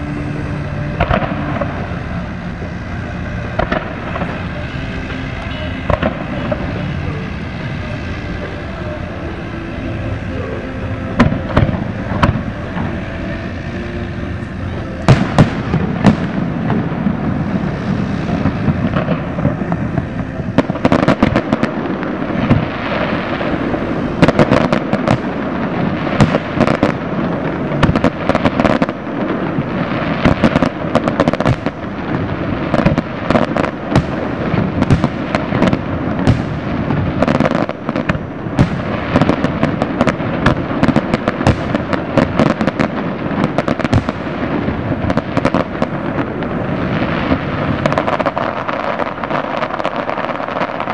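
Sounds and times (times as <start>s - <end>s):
firework bangs: 0.0s - 50.9s
fireworks crackling pops: 0.0s - 50.9s.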